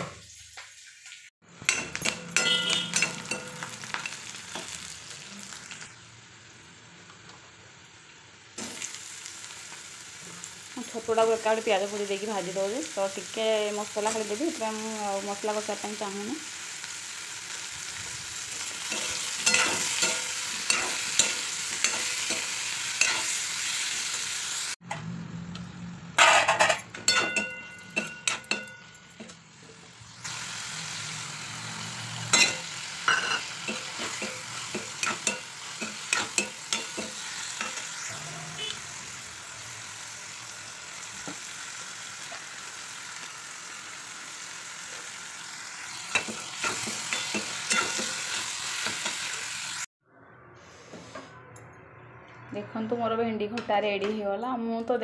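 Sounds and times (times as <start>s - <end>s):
mushrooms sizzling in oil: 0.8s - 6.4s, 8.1s - 24.8s, 30.0s - 49.9s.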